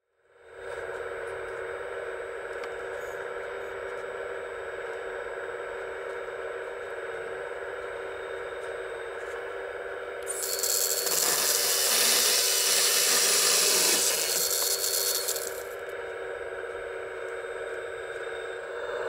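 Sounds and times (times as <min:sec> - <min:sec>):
hydraulic pump whining: 0:10.3 - 0:15.8.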